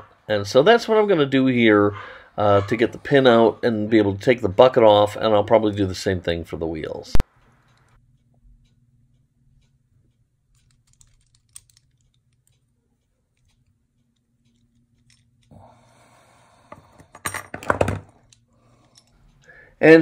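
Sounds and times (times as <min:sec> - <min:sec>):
clatter of metal parts: 0:10.5 - 0:12.7, 0:14.4 - 0:15.5
pliers clicking on metal: 0:10.5 - 0:12.7.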